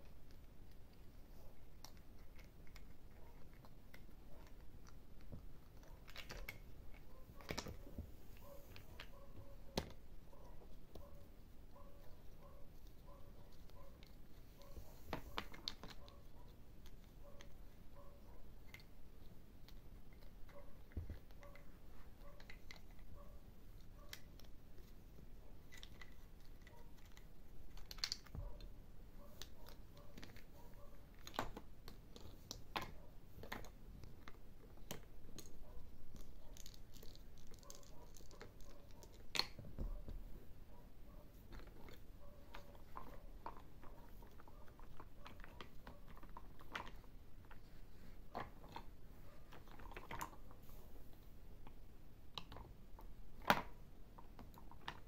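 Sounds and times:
plastic toy parts clicking: 25.6s - 28.3s.

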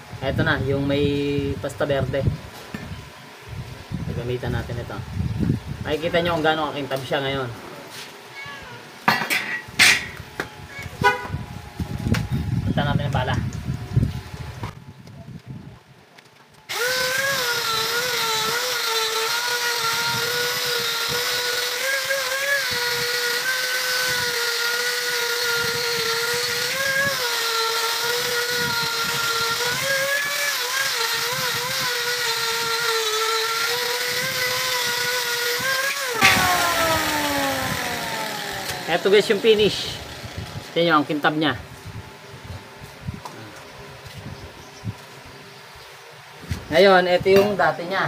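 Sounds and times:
angle grinder whining: 16.7s - 41.4s.

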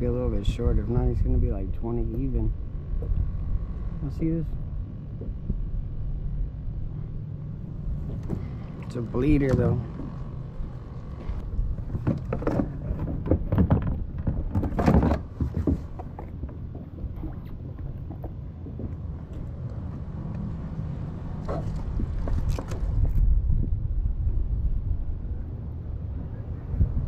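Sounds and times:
wind rumble on microphone: 0.0s - 27.0s
fishing gear knocking and rustling: 11.1s - 19.5s.

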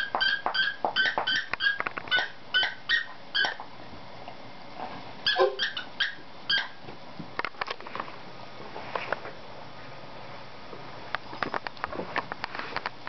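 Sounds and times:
squeaky dog toy squeaking: 0.0s - 3.6s, 5.2s - 6.8s.

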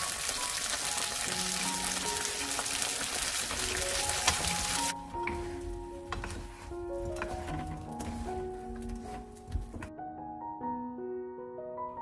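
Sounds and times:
fish deep-frying in oil: 0.0s - 5.0s
light background music: 0.0s - 12.0s.

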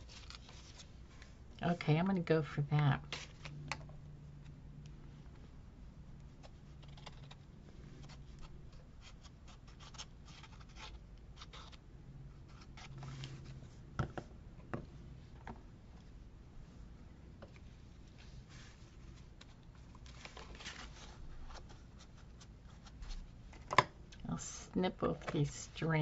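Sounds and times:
paper rustling and scratching: 0.0s - 1.3s, 6.3s - 11.8s, 18.1s - 23.3s
low steady hum: 0.0s - 26.0s.

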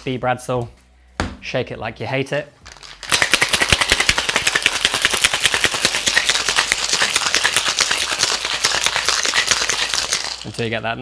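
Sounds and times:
ice rattling in metal shaker: 2.7s - 10.8s.

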